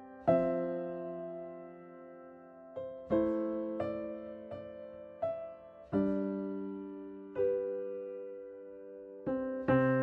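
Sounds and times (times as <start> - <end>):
slow piano chords: 0.0 - 10.0.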